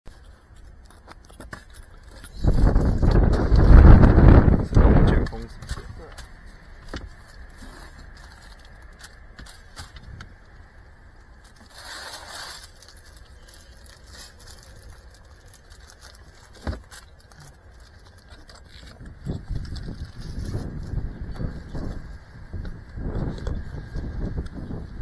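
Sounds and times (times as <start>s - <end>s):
plastic bag rustling: 11.4s - 21.9s.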